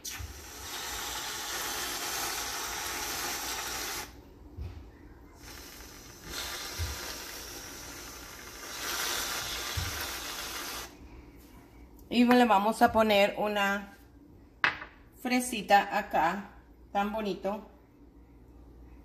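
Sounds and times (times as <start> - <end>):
aerosol can hissing: 0.0 - 4.2, 5.4 - 10.9.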